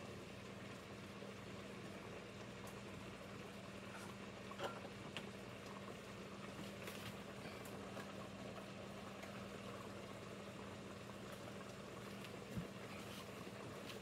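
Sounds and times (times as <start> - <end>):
low steady hum: 0.0 - 14.0
pots bubbling: 0.0 - 14.0.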